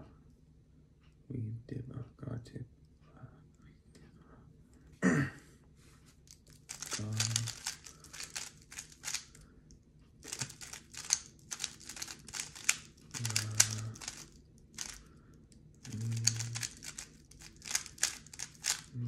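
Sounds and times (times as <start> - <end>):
puzzle cube clicking turns: 6.3 - 9.4, 10.2 - 19.0.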